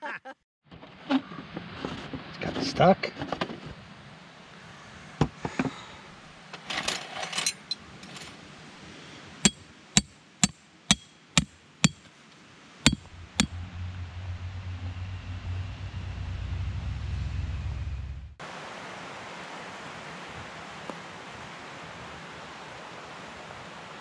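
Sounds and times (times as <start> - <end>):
hammer striking metal stake: 9.4 - 12.1, 12.9 - 13.6
knocks and metallic clinking: 9.5 - 12.0, 12.9 - 13.6.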